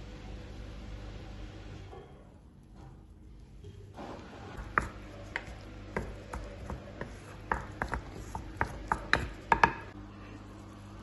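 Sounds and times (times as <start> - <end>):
spoon stirring wet mix: 4.2 - 10.0
spoon knocking on clay: 4.6 - 10.0.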